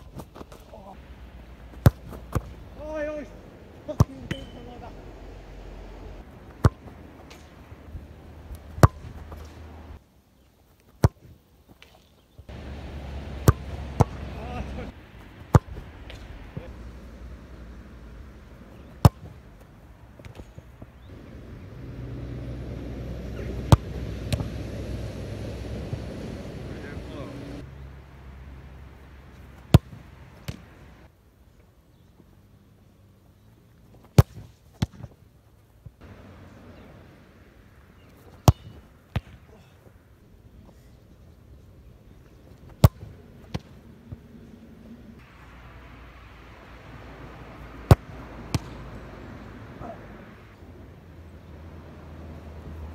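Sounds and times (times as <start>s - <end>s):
football striking a cone: 1.8s - 2.6s, 3.9s - 4.8s, 6.6s - 7.5s, 8.6s - 9.5s, 13.3s - 14.9s, 18.8s - 19.4s, 23.4s - 24.5s, 29.7s - 30.6s, 34.1s - 35.1s, 38.4s - 39.4s, 42.8s - 43.7s, 47.8s - 48.8s.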